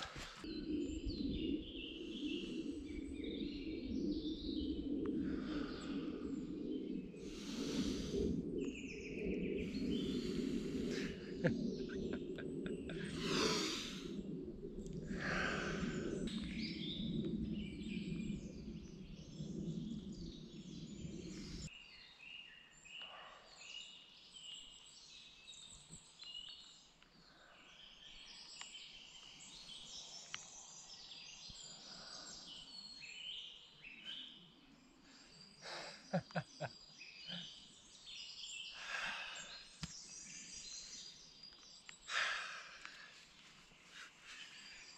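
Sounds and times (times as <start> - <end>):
birds chirping and calling: 35.0 - 43.1.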